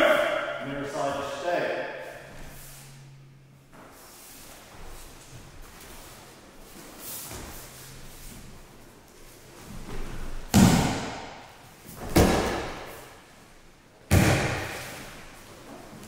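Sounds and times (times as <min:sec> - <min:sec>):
bodies thudding onto mats: 0:09.6 - 0:13.0.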